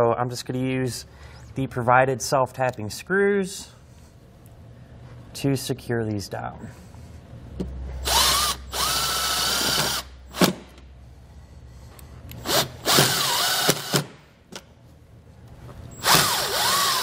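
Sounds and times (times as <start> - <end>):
impact driver motor whine: 16.0 - 17.0.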